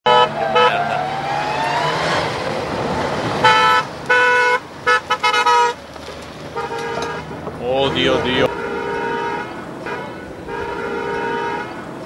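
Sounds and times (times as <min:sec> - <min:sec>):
car horn toots: 0:00.0 - 0:00.8, 0:03.4 - 0:05.8, 0:06.6 - 0:11.8
car engine on gravel road: 0:00.1 - 0:12.0.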